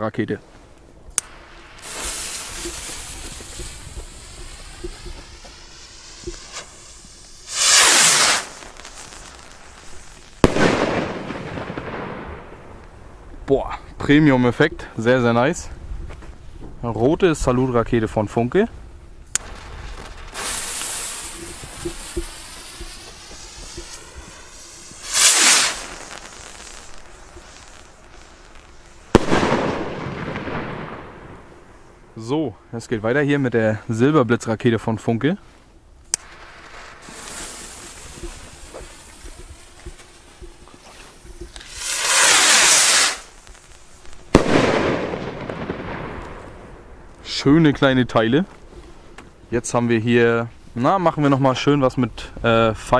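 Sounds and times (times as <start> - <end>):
fuse hissing and sputtering: 1.2 - 10.4, 20.0 - 28.9, 36.2 - 44.1
rocket launching whoosh: 1.2 - 12.8, 19.4 - 31.5, 40.8 - 46.6.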